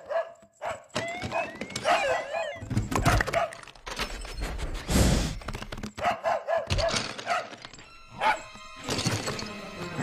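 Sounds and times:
cartoon dog yipping barks: 0.0 - 3.6, 6.0 - 7.5.

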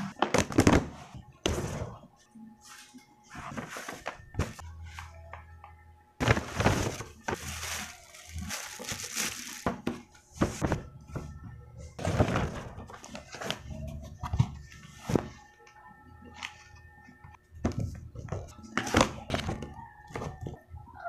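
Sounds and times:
plastic and paper rustling: 6.2 - 10.8.

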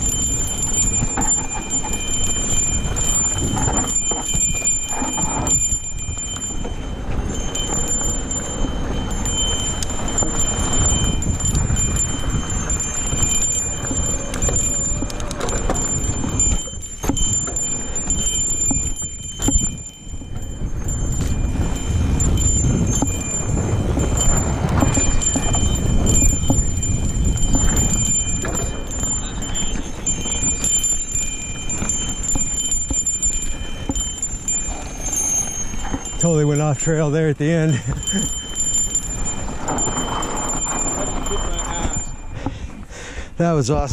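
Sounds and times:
bike parts clattering and rattling: 0.0 - 42.8
tyre noise on dirt: 0.0 - 42.9
wind rumbling on microphone: 0.0 - 43.9
thin high whine: 32.3 - 42.4.

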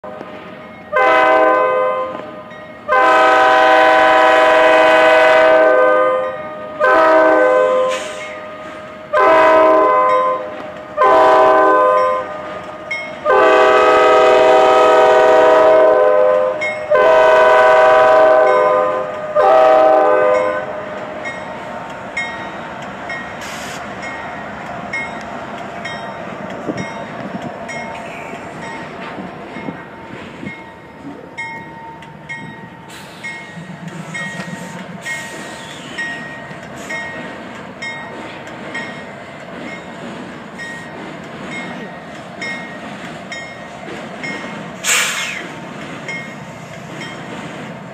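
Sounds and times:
train rumble and wheel clatter: 0.0 - 47.9
locomotive air horn blasts: 0.9 - 12.5, 13.2 - 21.0.

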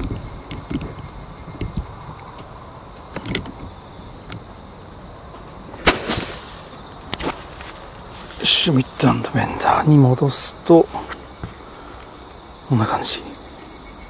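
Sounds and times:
insects whining: 0.0 - 14.0
loud sharp clack: 5.8 - 6.7.

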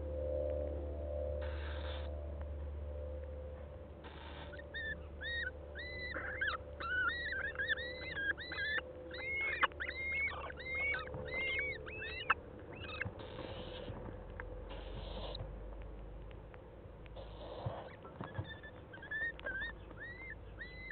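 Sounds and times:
owl high chirping notes: 0.0 - 2.4, 4.0 - 15.4, 17.2 - 20.9
owl hissing: 1.4 - 2.2, 4.0 - 14.0, 14.7 - 15.4, 17.2 - 20.9.

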